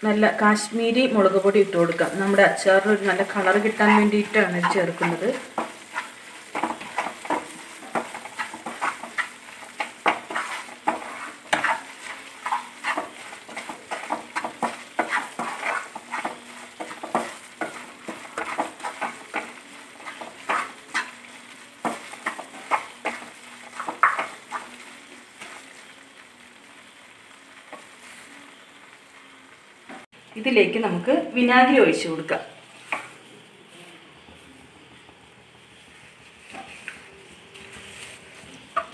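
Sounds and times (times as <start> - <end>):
low sizzle of frying paste: 0.0 - 38.9
spatula scraping pan: 0.7 - 25.9, 35.8 - 38.9.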